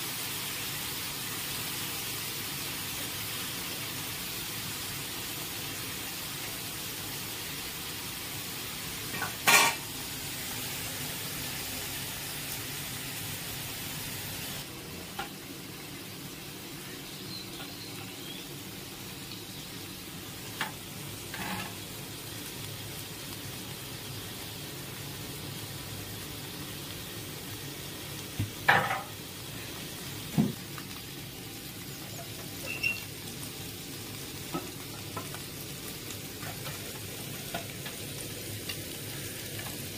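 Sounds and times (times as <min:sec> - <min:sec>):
fish sizzling in oil: 0:00.0 - 0:39.9
spatula scraping a pan: 0:21.3 - 0:21.8.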